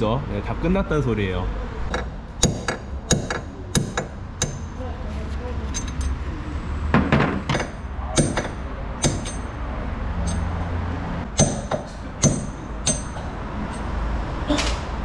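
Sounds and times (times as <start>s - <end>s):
hammer striking steel: 1.9s - 4.8s, 7.0s - 9.6s, 10.2s - 14.0s.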